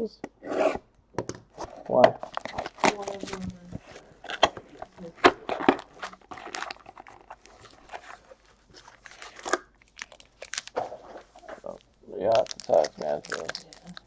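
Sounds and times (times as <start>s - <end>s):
plastic wrap crinkling: 1.5s - 14.0s.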